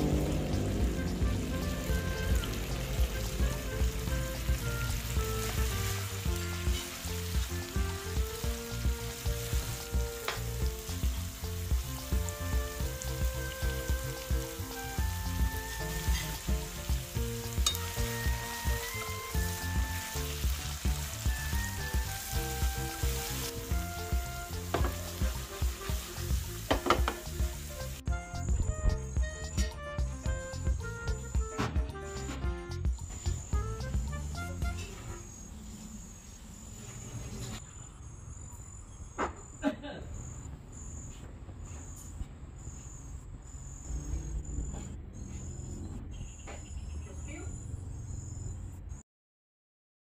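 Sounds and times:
shrimp sizzling in a pan: 0.0 - 28.0
background music: 0.0 - 35.4
insects chirping: 34.8 - 48.8.

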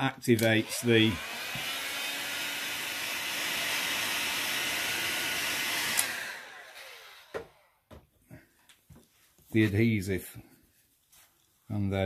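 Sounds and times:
heat gun blowing with fan whine: 0.4 - 7.7.

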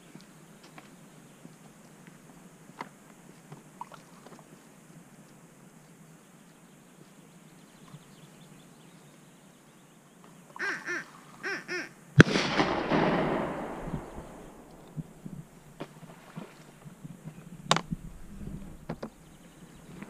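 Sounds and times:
duck call quacks: 10.6 - 12.0
gunshot echoing: 12.2 - 15.8.

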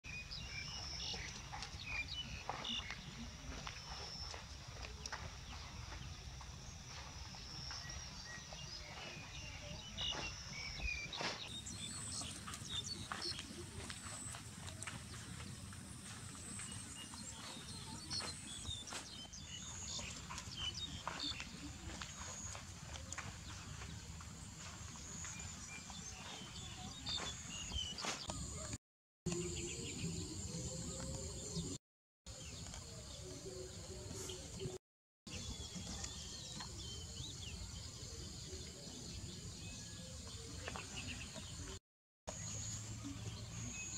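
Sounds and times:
bird chirps: 0.1 - 23.9.

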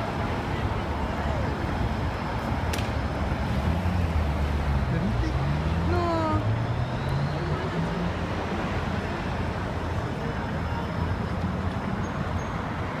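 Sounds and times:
low rumble of traffic: 0.0 - 13.0.

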